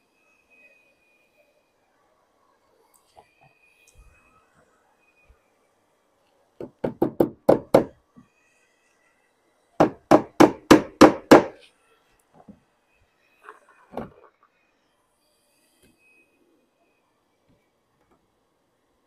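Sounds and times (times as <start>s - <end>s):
hammer striking nails: 6.6s - 8.0s, 9.8s - 11.6s.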